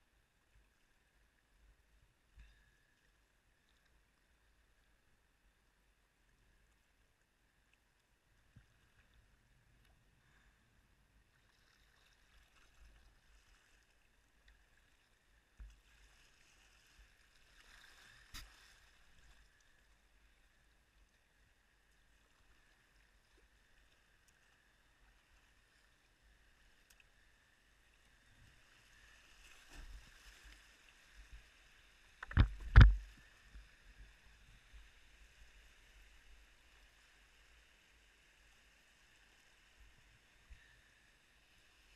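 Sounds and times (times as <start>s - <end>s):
paddle knocks and splashes: 32.2s - 33.1s
boat and paddle thumping water: 32.2s - 33.6s.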